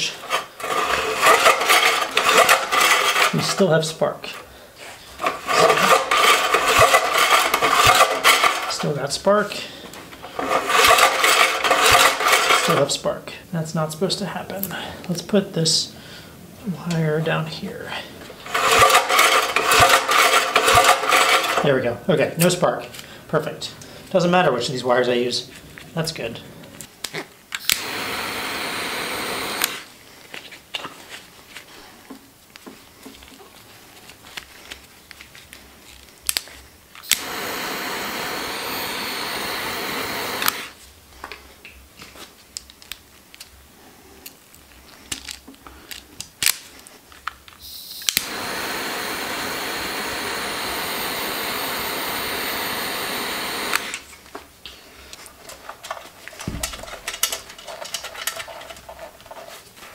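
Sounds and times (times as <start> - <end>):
heat gun blowing: 0.0 - 3.4, 4.8 - 8.9, 10.2 - 12.8, 18.2 - 21.7, 27.6 - 29.9, 37.0 - 40.8, 47.6 - 54.2
small clicks and handling noises: 29.6 - 37.2, 41.2 - 43.6, 44.2 - 48.3, 53.7 - 59.9.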